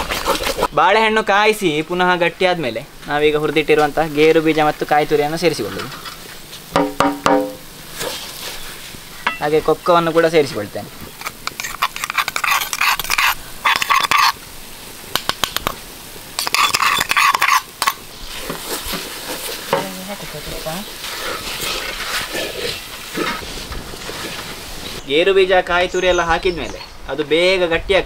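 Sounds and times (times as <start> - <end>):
mixture sizzling: 1.6 - 25.0
wooden spatula scraping pan: 7.9 - 9.4, 11.1 - 14.4, 16.4 - 20.0, 21.0 - 25.0.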